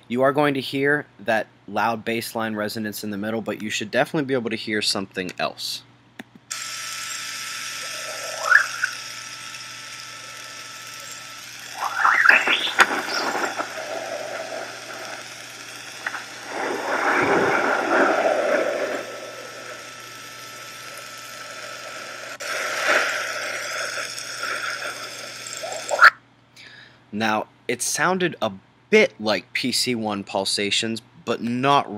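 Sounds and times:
short rising chirps: 7.8 - 9.2, 11.6 - 19.8
steady hiss: 11.0 - 26.1
swells of scratchy noise: 11.6 - 26.1.

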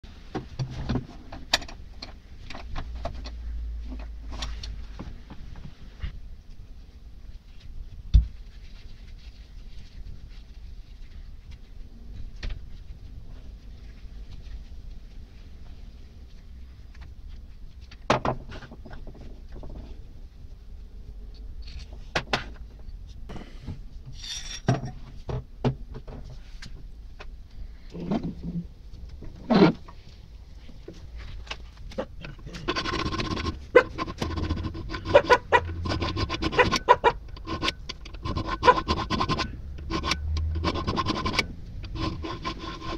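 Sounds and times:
steel parts scraping: 24.1 - 24.9, 32.2 - 42.9.

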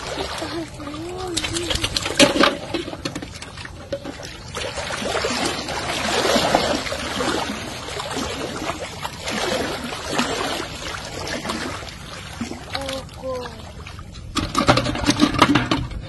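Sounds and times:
water running and splashing: 0.0 - 14.4.

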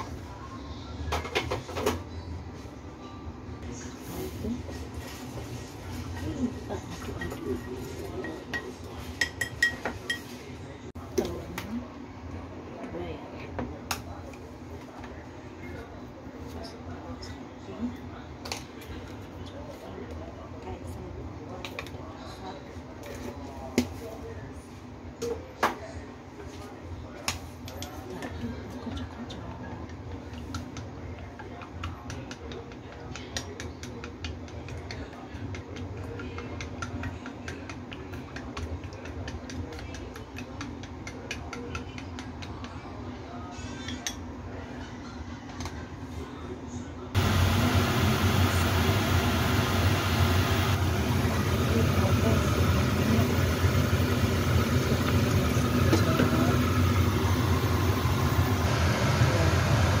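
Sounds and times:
chopsticks beating eggs in bowl: 27.7 - 43.1, 47.2 - 58.7.

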